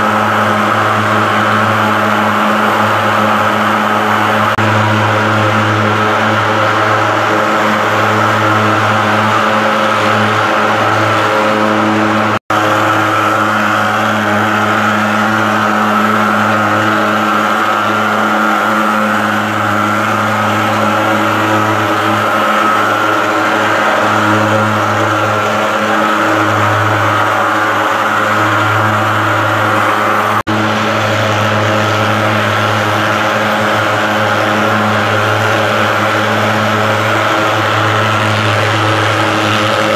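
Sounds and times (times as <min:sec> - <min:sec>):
fogging machine buzzing drone: 0:00.0 - 0:39.9.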